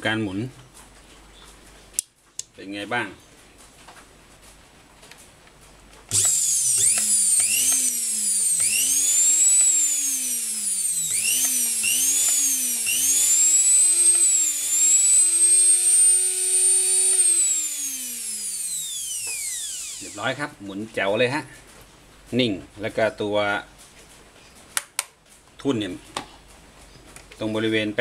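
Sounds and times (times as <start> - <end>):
electric motor whining: 6.1 - 20.4.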